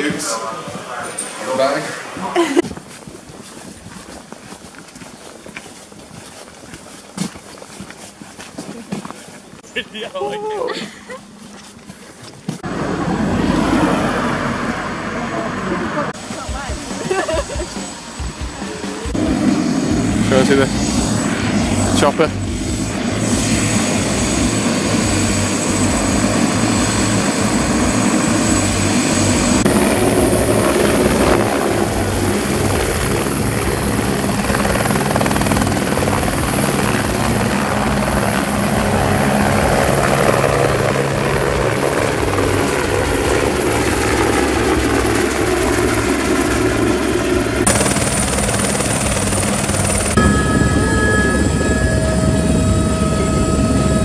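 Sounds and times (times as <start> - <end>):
steady cabin whine: 0.0 - 54.0
helicopter engine and rotor: 12.2 - 54.0.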